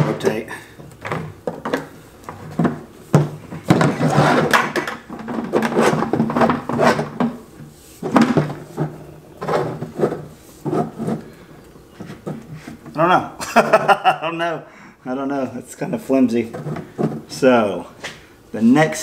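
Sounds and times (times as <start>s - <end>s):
plastic pipes clattering: 0.0s - 7.4s, 8.0s - 11.4s, 16.4s - 17.4s.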